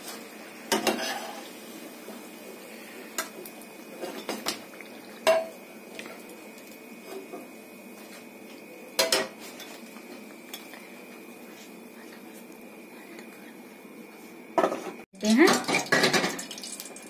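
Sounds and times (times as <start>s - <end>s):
metal cookware clinking: 5.2s - 5.6s, 9.0s - 9.8s.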